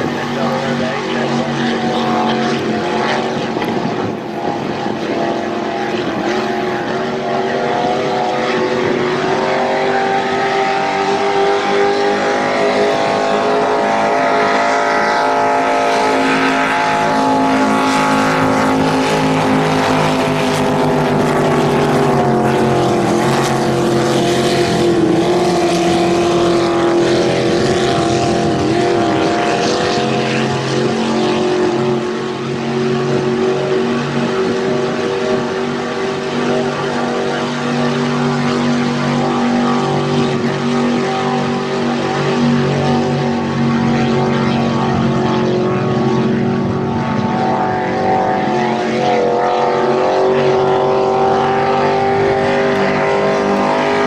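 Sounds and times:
motorboat engines high-revving drone: 0:00.0 - 0:54.0.

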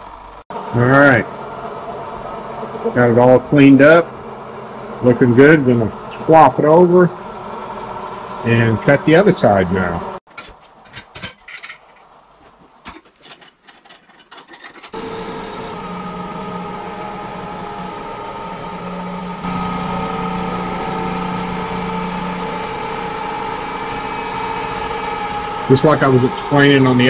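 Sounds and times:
milling machine humming whine: 0:00.0 - 0:10.2, 0:14.9 - 0:27.0
metal clicks and clunks: 0:12.8 - 0:15.0.

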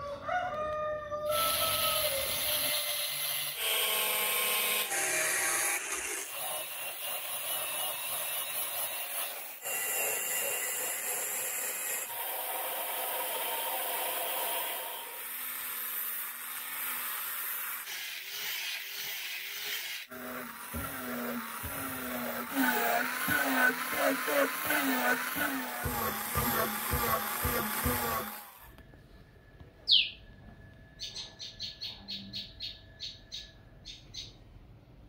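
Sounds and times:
angle grinder grinding steel: 0:01.3 - 0:28.8.

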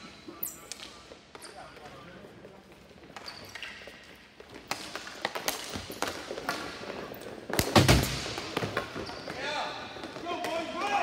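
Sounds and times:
hockey sticks cracking on ball: 0:04.4 - 0:09.4, 0:10.0 - 0:11.0.

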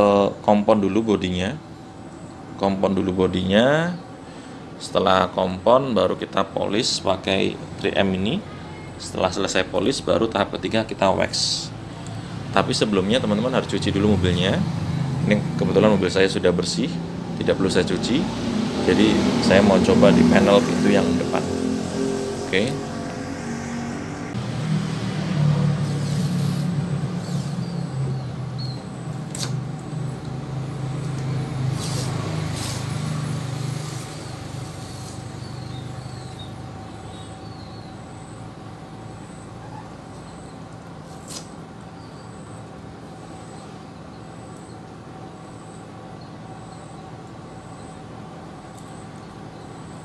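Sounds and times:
vehicle engine humming: 0:06.5 - 0:50.0
masking tape ripping off roll: 0:25.8 - 0:27.6, 0:29.3 - 0:29.6, 0:31.7 - 0:35.4, 0:41.0 - 0:41.6.

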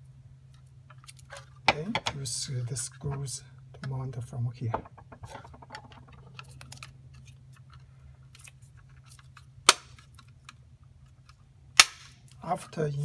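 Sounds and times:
sharp plastic snaps: 0:09.6 - 0:10.6, 0:11.7 - 0:12.4.

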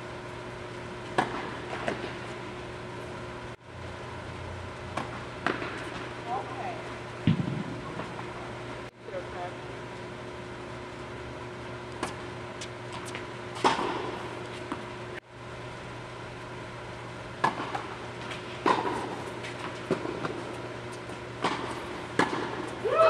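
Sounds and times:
steady low hum: 0:00.0 - 0:23.0
tennis balls struck by rackets: 0:01.1 - 0:02.4, 0:04.9 - 0:06.5, 0:13.6 - 0:14.9, 0:17.4 - 0:20.6, 0:21.4 - 0:22.8.

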